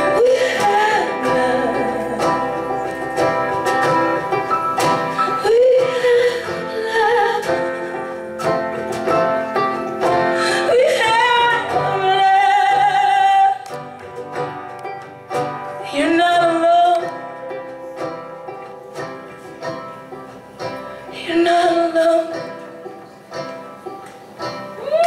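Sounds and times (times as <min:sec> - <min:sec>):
woman singing with vibrato: 0:00.0 - 0:03.0, 0:05.2 - 0:08.0, 0:10.0 - 0:13.9, 0:15.8 - 0:17.5, 0:21.1 - 0:23.0, 0:24.8 - 0:25.0
electric guitars: 0:00.0 - 0:16.1
banjo: 0:00.0 - 0:25.0
drums: 0:00.0 - 0:25.0.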